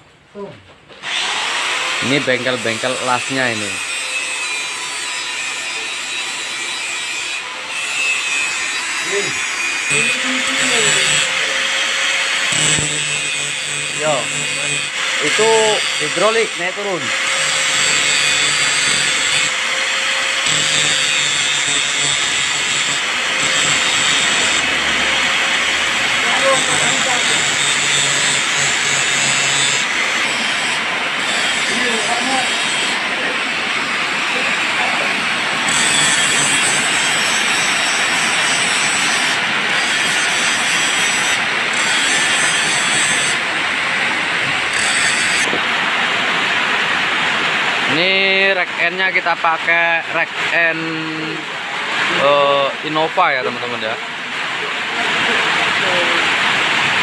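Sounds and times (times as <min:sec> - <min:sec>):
angle grinder cutting steel: 0:01.0 - 0:45.6.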